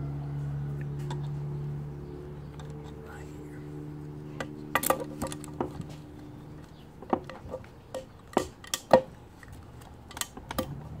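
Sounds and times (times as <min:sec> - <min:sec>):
metallic clicks and taps: 0:06.6 - 0:10.8.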